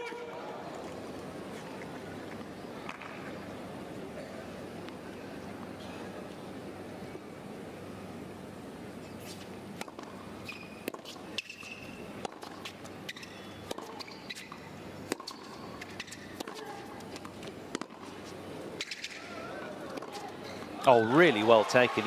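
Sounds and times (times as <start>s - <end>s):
shoe soles squeaking: 10.4s - 12.0s, 13.1s - 14.6s.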